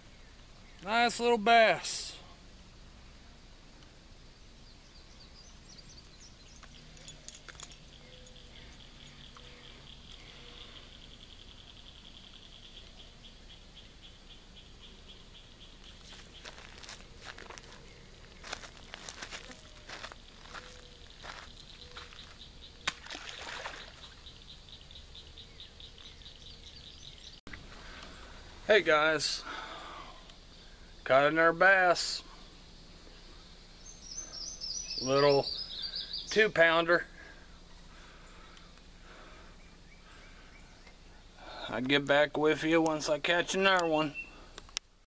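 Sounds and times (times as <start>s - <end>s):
faint chirping: 0.0s - 42.2s
short water splash: 22.8s - 24.2s
fish slapping water: 22.9s - 24.2s.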